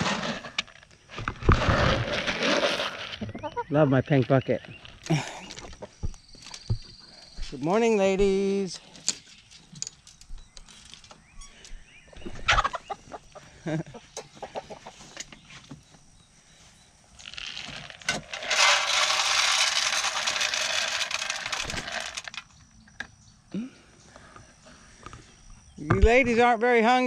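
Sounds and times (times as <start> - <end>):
feed pellets rattling into trough: 0.0 - 3.2, 17.2 - 22.4
hens clucking: 12.1 - 15.3.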